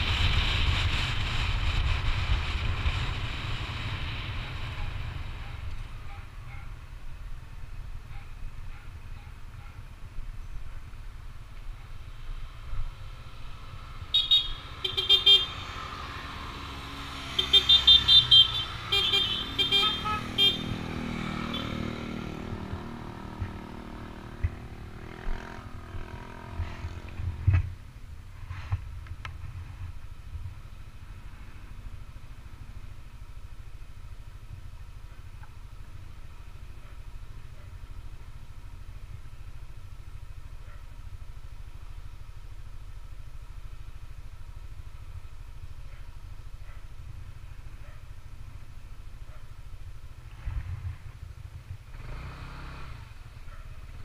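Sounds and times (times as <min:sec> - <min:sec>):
low wind rumble: 0:00.0 - 0:14.2
vehicle horn tooting: 0:14.1 - 0:15.6, 0:17.3 - 0:20.8.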